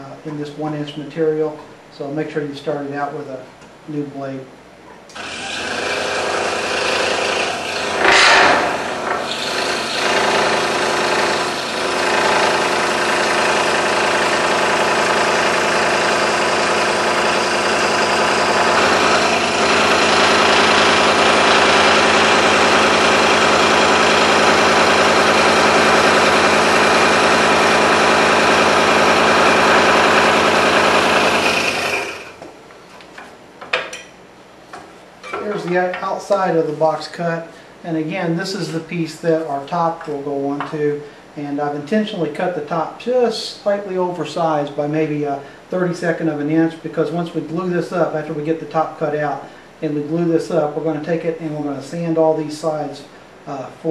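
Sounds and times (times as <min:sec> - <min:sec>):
scroll saw cutting wood: 0:05.1 - 0:32.4.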